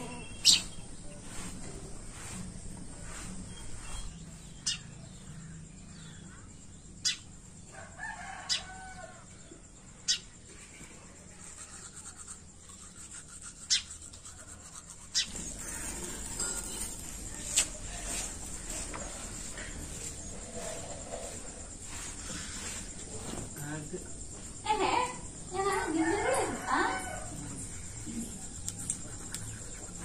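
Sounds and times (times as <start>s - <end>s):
sparrow chirps: 0.0s - 1.5s, 3.0s - 7.5s, 10.0s - 10.4s, 13.5s - 17.4s.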